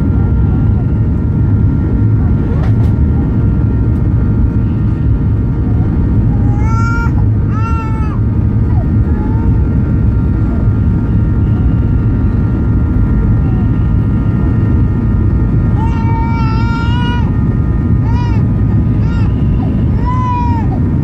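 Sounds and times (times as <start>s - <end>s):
faint steady whine: 0.0s - 21.0s
jet engine rumble: 0.0s - 21.0s
baby crying: 6.2s - 9.8s, 15.7s - 17.3s, 18.0s - 20.9s.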